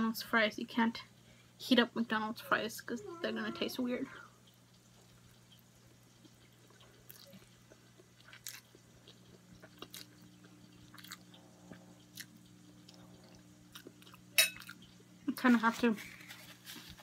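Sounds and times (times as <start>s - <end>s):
chewing and slurping spaghetti: 4.7s - 15.0s.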